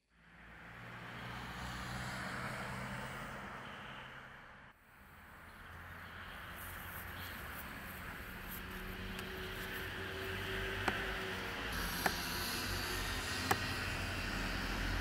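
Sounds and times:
outdoor background hum: 0:04.8 - 0:15.0.

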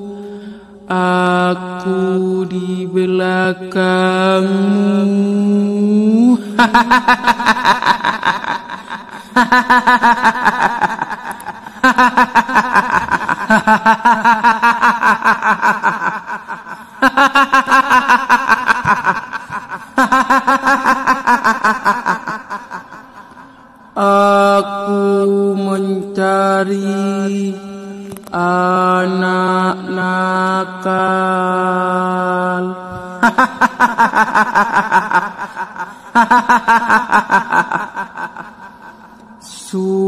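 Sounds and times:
woman cackling laugh: 0:06.6 - 0:23.5, 0:33.2 - 0:39.2.

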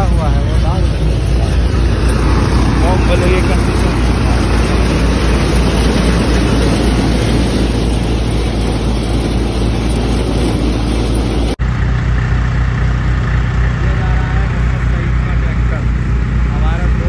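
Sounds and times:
thresher mechanical clatter: 0:00.0 - 0:11.6
tractor engine hum: 0:00.0 - 0:17.0.

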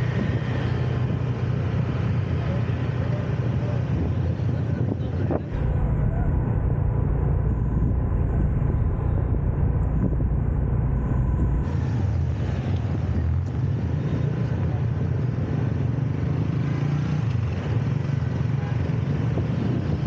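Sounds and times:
motorbike and car engines: 0:00.0 - 0:20.0
heavy low rumble: 0:03.9 - 0:14.8.

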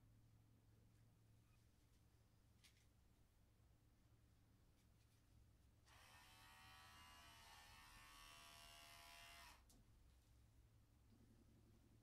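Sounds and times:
electric hair clipper running: 0:05.9 - 0:09.6.

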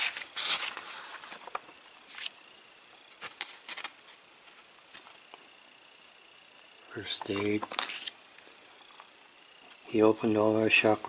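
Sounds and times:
book pages rustling: 0:00.0 - 0:02.4, 0:03.0 - 0:05.4, 0:07.1 - 0:09.1.

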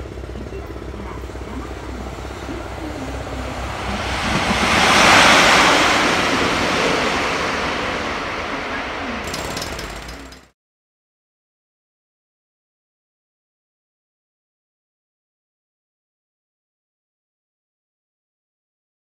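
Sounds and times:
electric locomotive passing: 0:00.0 - 0:10.5.

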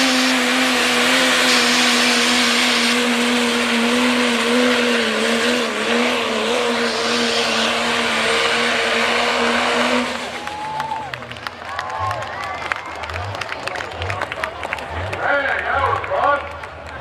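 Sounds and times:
heavy rushing exhaust: 0:00.0 - 0:12.2
truck engine at high revs: 0:00.0 - 0:17.0.

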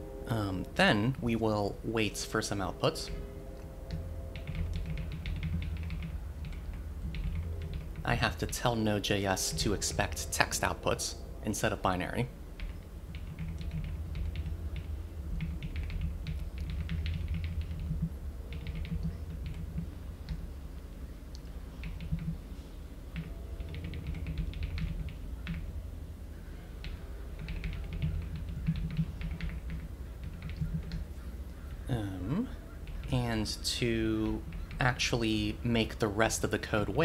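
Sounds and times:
low steady hum: 0:00.0 - 0:37.0
keyboard typing: 0:03.9 - 0:08.7, 0:12.6 - 0:20.4, 0:21.4 - 0:22.4, 0:23.1 - 0:25.6, 0:26.8 - 0:31.1, 0:34.2 - 0:35.0.

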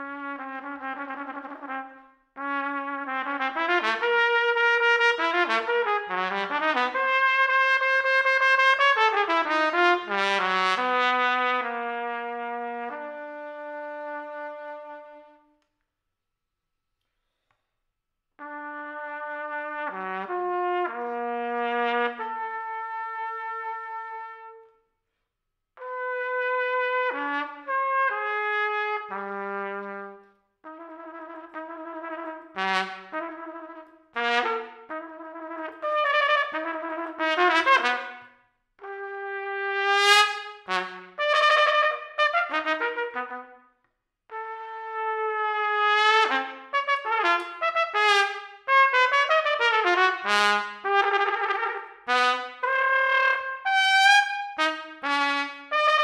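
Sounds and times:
solo trumpet playing: 0:00.0 - 0:15.6, 0:18.4 - 0:24.8, 0:25.8 - 0:43.7, 0:44.3 - 0:56.0
trumpeter breathing: 0:17.0 - 0:17.9.

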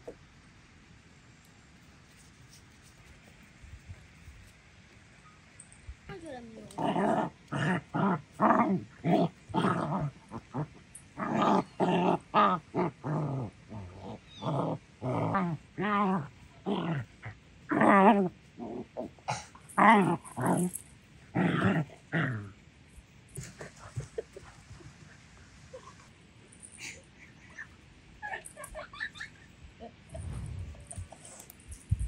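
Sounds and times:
dogs growling: 0:06.7 - 0:22.5.

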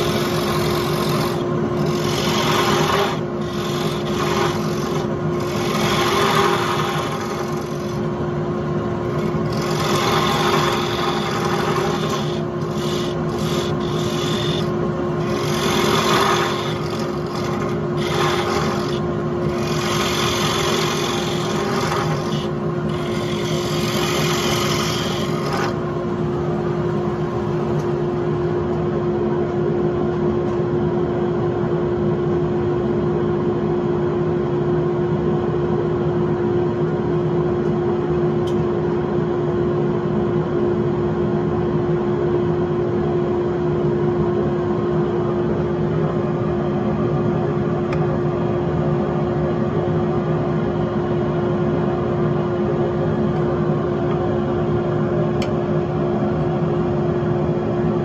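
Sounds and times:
tool rasping on spinning wood: 0:00.0 - 0:08.2, 0:08.9 - 0:26.0
lathe motor humming: 0:00.0 - 0:27.9.

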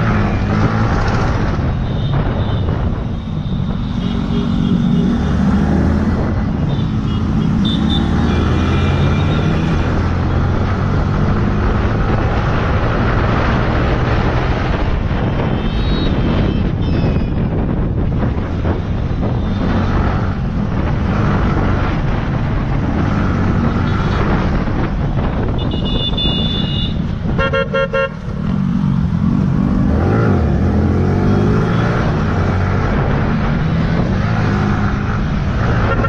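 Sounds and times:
vehicle horn toot: 0:15.4 - 0:17.3, 0:25.6 - 0:28.2.

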